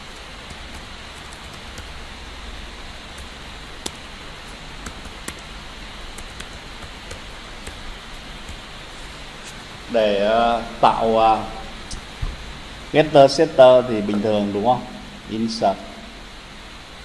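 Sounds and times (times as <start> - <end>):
background hiss: 0.0 - 17.0
keyboard keystrokes: 3.1 - 5.5, 6.1 - 7.8.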